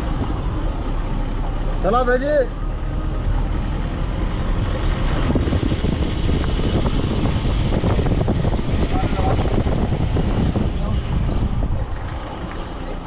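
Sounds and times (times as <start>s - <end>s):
road vehicle moving: 0.0s - 13.0s
wind rumble on microphone: 2.9s - 13.0s.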